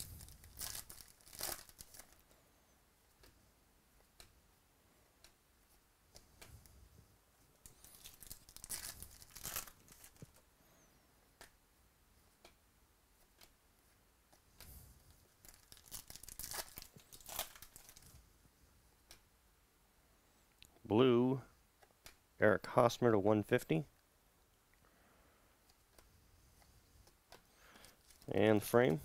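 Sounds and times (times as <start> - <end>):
foil wrapper crinkling: 0.0 - 2.2, 7.6 - 10.4, 15.4 - 18.1, 27.7 - 28.3.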